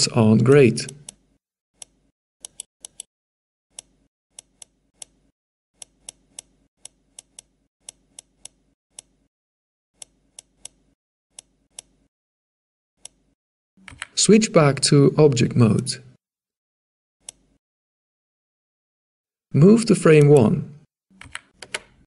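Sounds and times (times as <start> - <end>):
computer mouse clicking: 0.9 - 1.2, 1.8 - 3.1, 13.8 - 14.1, 21.2 - 22.0.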